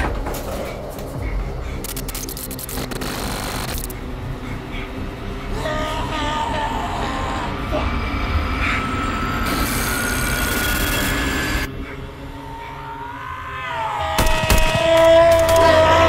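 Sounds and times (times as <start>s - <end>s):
sharp clicks: 1.8s - 4.0s
high screeching: 5.6s - 16.0s.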